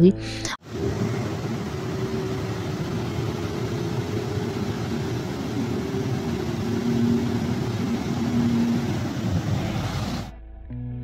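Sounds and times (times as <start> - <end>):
water rushing through sluice gates: 0.6 - 10.3.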